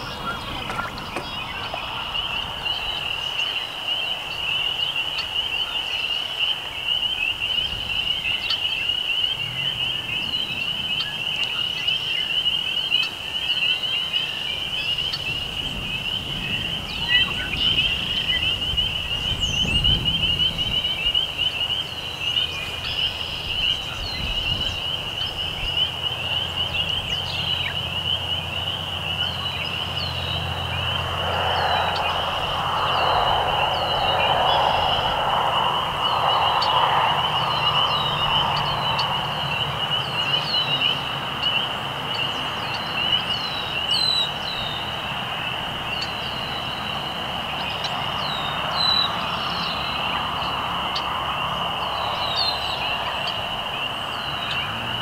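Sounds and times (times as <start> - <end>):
low rushing murmur: 0.0 - 4.0, 23.0 - 41.6
frogs peeping chorus: 0.0 - 55.0.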